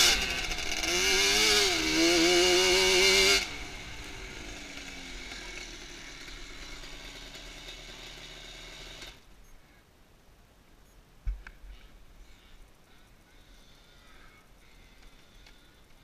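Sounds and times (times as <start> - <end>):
quad engine idling: 0.0 - 9.2.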